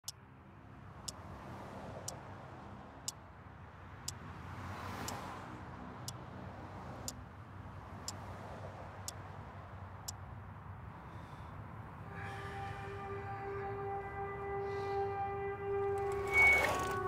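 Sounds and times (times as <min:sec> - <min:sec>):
distant traffic rumble: 0:00.0 - 0:17.0
car passing: 0:03.9 - 0:09.9, 0:10.6 - 0:17.0.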